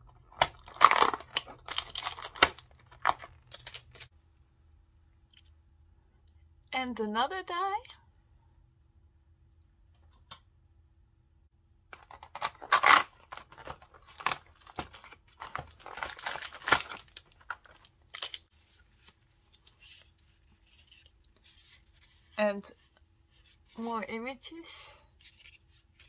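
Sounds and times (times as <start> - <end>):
plastic sleeve crinkling: 0.0 - 4.1, 11.9 - 22.4
cardboard tearing: 0.4 - 4.0, 12.0 - 18.4.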